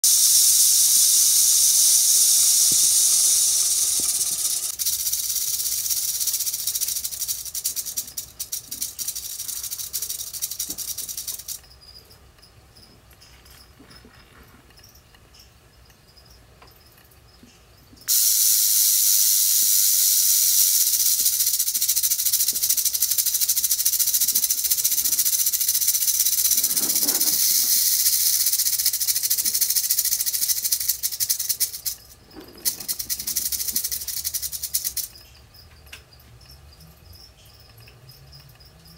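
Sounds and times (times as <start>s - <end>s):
rattlesnake tail rattling: 0.0s - 11.7s, 18.1s - 35.3s.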